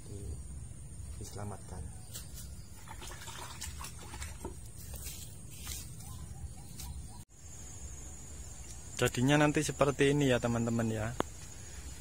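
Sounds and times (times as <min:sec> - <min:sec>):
hands rustling plant material: 0:04.4 - 0:07.1.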